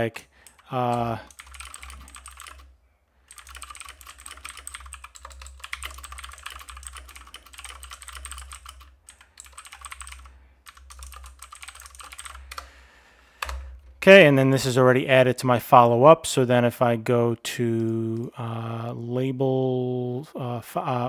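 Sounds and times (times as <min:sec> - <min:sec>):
fast typing on keyboard: 0:00.4 - 0:02.7, 0:03.3 - 0:12.7.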